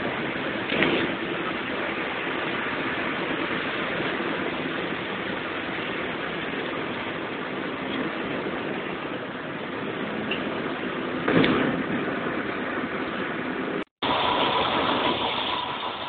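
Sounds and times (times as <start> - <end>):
bus engine and road noise: 0.0 - 16.0.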